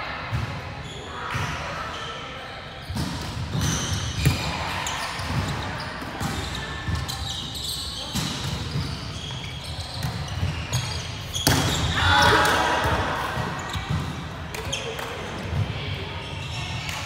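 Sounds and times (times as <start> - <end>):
shoes squeaking on court: 0.8 - 17.0
volleyball hits: 10.0 - 15.8.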